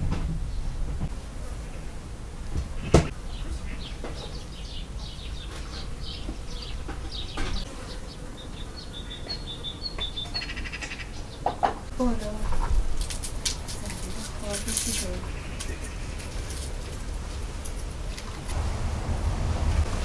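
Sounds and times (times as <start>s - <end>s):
small birds chirping: 2.7s - 12.8s, 13.8s - 18.2s.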